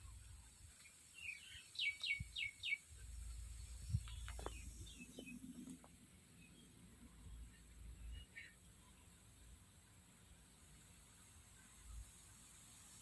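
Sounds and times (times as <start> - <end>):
bird chirping: 0.7 - 9.2.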